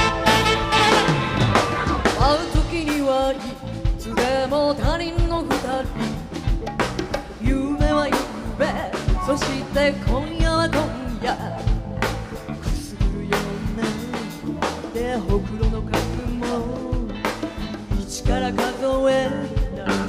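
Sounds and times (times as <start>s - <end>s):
saxophone: 0.0s - 3.2s
drum kit: 0.0s - 20.0s
electric bass: 0.0s - 20.0s
woman singing into a microphone: 2.0s - 6.6s, 7.3s - 20.0s.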